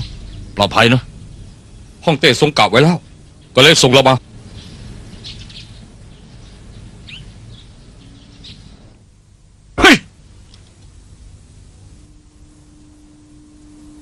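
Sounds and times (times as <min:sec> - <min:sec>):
faint bird chirps: 0:03.0 - 0:09.0.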